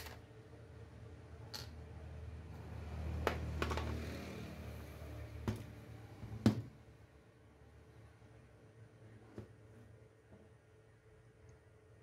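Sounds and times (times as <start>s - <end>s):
laptop handling rumble: 3.1s - 6.7s.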